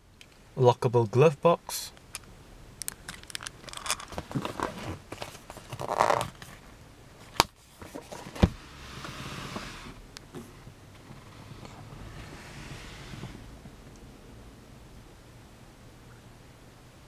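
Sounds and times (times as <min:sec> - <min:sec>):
sun visor rustling and scraping: 0:03.8 - 0:13.8.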